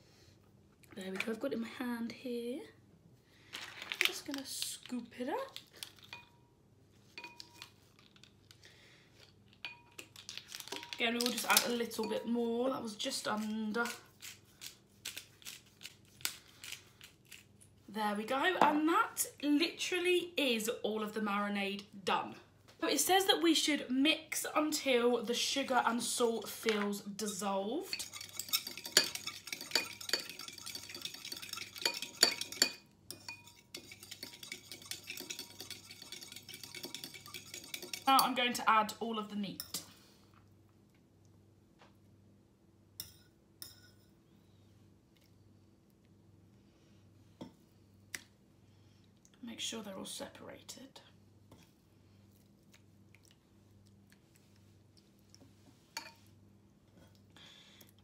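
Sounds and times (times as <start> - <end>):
low steady hum: 0.0 - 58.0
metal spoon clinking in ceramic bowl: 7.2 - 7.8, 9.6 - 12.3, 27.3 - 38.4, 43.0 - 44.1.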